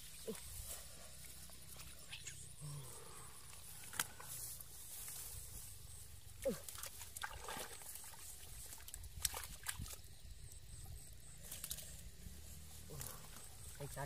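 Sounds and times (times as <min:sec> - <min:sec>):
hands squelching in wet mud: 0:03.2 - 0:05.6, 0:06.3 - 0:10.2.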